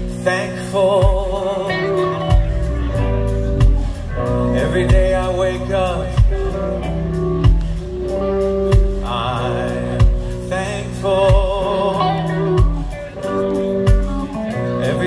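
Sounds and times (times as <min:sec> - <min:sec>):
live rock band playing: 0:00.0 - 0:15.0
man singing with vibrato: 0:00.0 - 0:15.0
heavy drum hits: 0:02.3 - 0:08.0.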